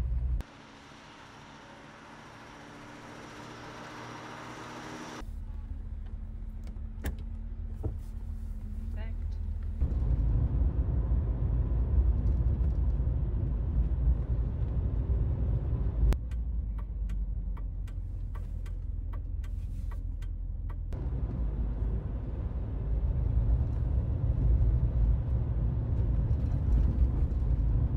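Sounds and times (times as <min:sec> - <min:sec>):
car engine and road rumble: 0:00.0 - 0:27.9
light ticking: 0:16.2 - 0:21.0.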